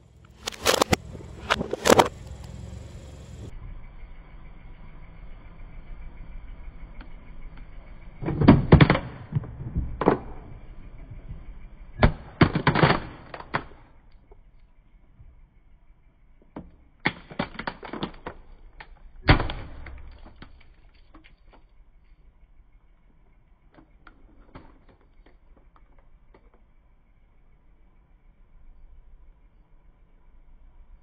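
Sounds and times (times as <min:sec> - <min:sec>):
plastic toy cracking under tyre: 0:00.3 - 0:02.1, 0:08.2 - 0:10.5, 0:12.0 - 0:14.2, 0:16.6 - 0:21.8, 0:23.7 - 0:26.7.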